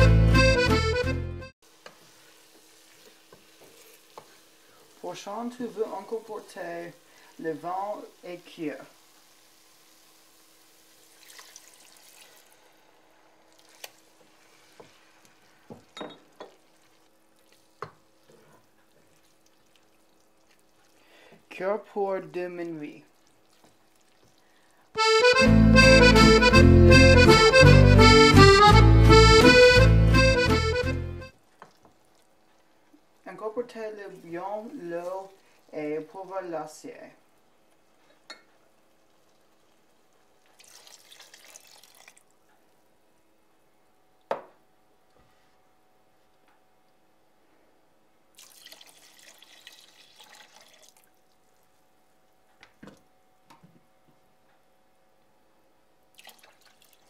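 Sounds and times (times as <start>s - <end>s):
accordion music: 0.0s - 1.6s, 25.0s - 31.3s
broth splashing into pot: 1.7s - 21.5s, 34.2s - 36.0s, 37.8s - 42.4s, 48.3s - 51.6s, 56.1s - 57.0s.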